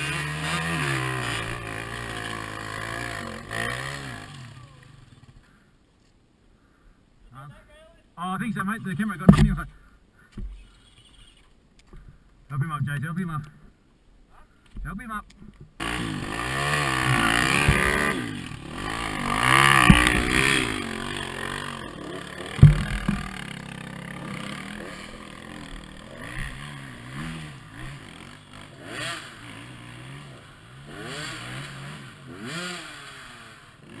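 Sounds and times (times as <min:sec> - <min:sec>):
dirt bike engine revving: 0:00.0 - 0:05.5, 0:15.8 - 0:34.0
sharp knock: 0:22.5 - 0:23.4.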